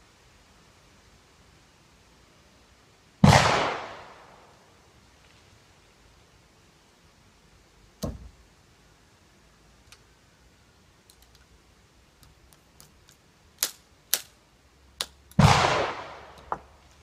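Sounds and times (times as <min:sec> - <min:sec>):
gunshot with echo: 0:03.2 - 0:04.1, 0:15.4 - 0:16.2.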